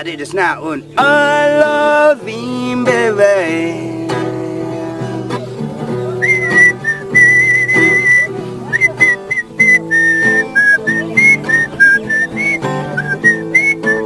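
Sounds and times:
strummed acoustic guitar: 0.0 - 14.0
person whistling a tune: 6.2 - 14.0.

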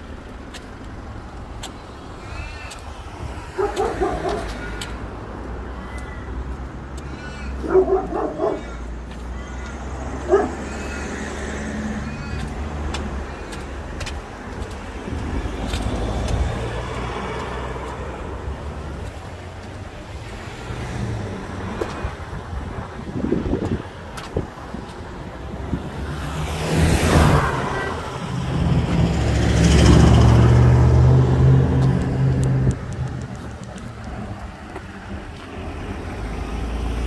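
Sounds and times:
steady road traffic: 0.0 - 37.0
car passing: 1.4 - 37.0
dog barking: 3.5 - 4.7, 7.6 - 8.9, 10.2 - 10.8.

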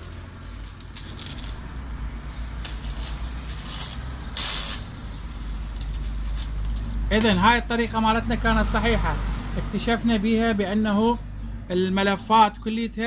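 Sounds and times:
metal probe clicking and scraping: 0.0 - 7.4.

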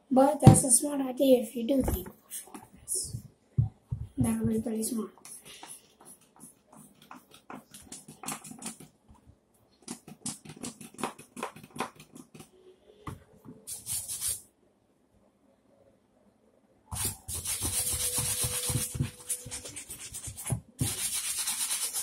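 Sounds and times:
brush scrubbing a sneaker: 17.0 - 22.0.

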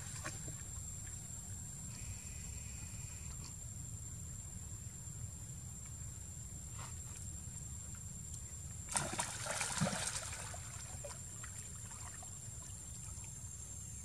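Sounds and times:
water trickling and lapping: 8.4 - 14.0
water splashing: 8.9 - 13.3.

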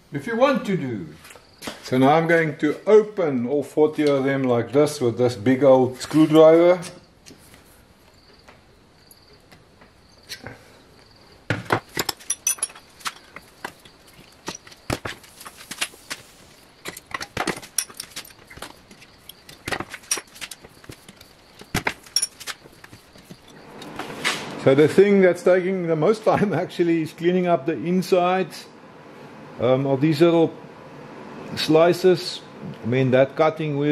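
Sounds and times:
metallic clinks and taps: 12.0 - 13.2.

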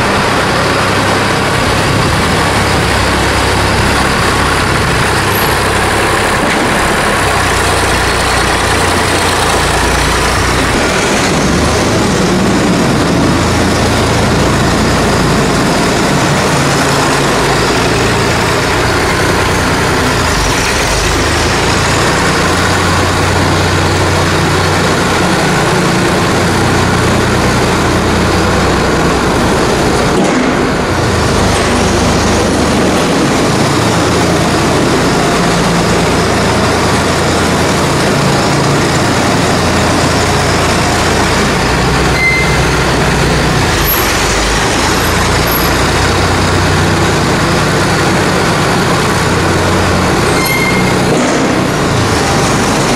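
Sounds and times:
tractor engine running: 0.0 - 52.9.

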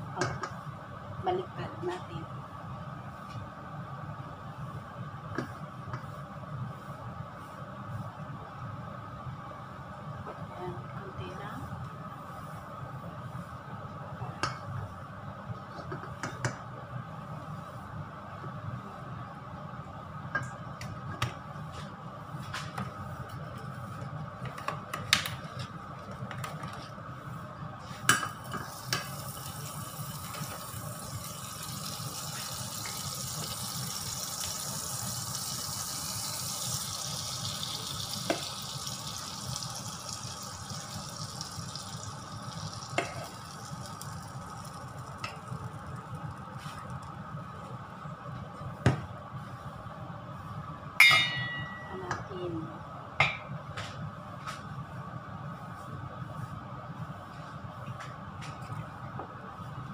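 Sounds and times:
oil sizzling in a frying pan: 28.2 - 47.3
pan and utensils clinking: 51.0 - 52.1.

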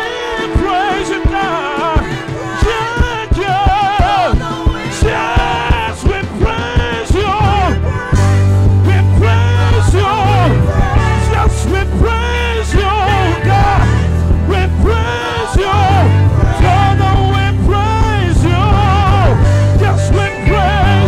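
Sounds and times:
gospel singing with band: 0.0 - 21.0
drum hits: 0.5 - 21.0
deep sustained bass: 7.4 - 21.0.

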